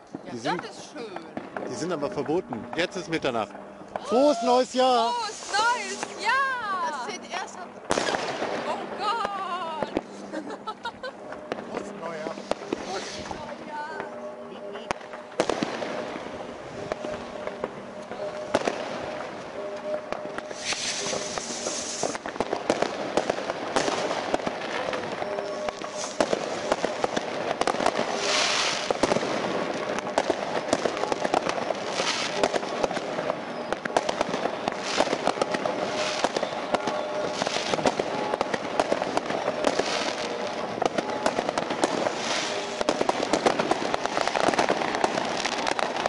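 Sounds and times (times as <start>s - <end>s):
firecrackers crackling and banging: 0.0s - 46.0s
hissing firework bursts: 4.0s - 10.9s, 11.6s - 13.4s, 20.4s - 46.0s.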